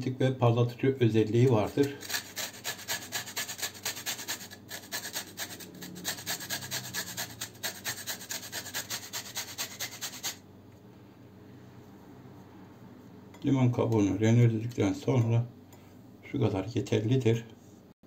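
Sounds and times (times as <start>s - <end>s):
grater rasping: 1.7s - 10.4s.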